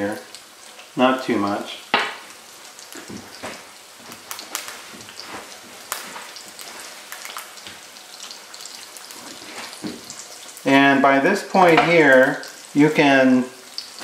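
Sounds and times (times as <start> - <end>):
eggs frying in grease: 0.0 - 14.0
hot fat popping: 1.9 - 10.6.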